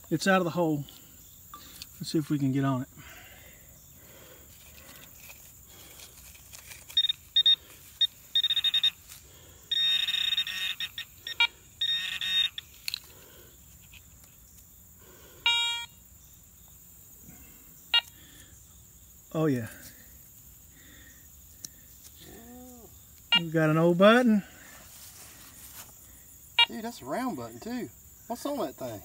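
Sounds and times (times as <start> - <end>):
metal detector buzzing alerts: 4.8 - 14.2, 15.0 - 16.1, 17.9 - 18.2, 23.2 - 24.2, 26.6 - 27.6.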